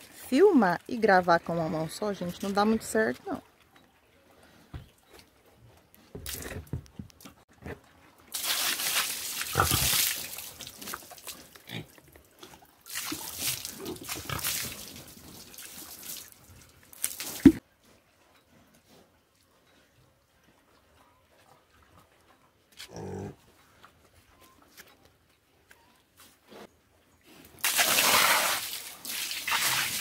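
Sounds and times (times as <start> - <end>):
water splashing on concrete: 8.3 - 11.6, 12.9 - 17.6, 27.6 - 30.0
pigs grunting: 9.5 - 10.0, 22.7 - 23.4.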